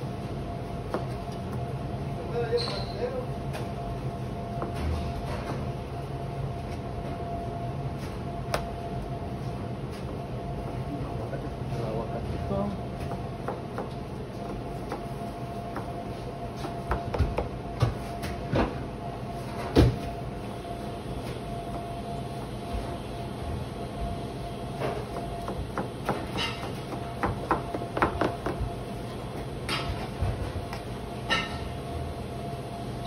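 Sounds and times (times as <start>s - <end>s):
steady hum: 0.0s - 33.0s
dishes and utensils clinking: 26.3s - 26.7s, 31.3s - 31.7s.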